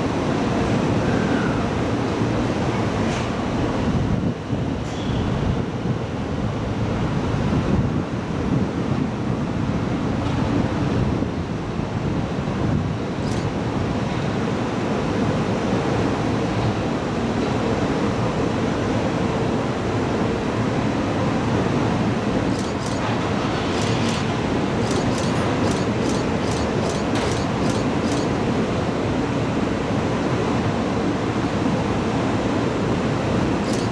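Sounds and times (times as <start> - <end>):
wind on microphone: 3.6 - 14.0
electric train rumbling: 11.8 - 30.8, 32.8 - 33.9.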